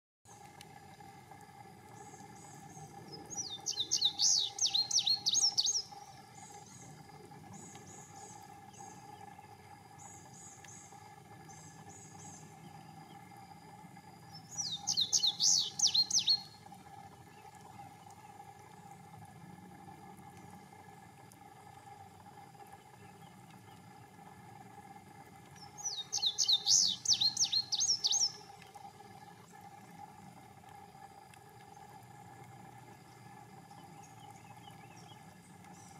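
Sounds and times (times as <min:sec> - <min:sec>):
bird singing high notes: 0:03.3 - 0:05.9, 0:14.5 - 0:16.6, 0:25.8 - 0:28.4.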